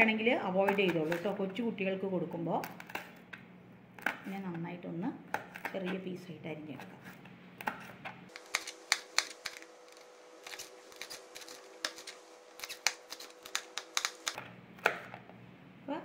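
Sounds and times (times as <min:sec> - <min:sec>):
knife chopping on plastic board: 0:00.6 - 0:01.3, 0:04.0 - 0:04.6, 0:07.6 - 0:09.6, 0:11.0 - 0:15.2.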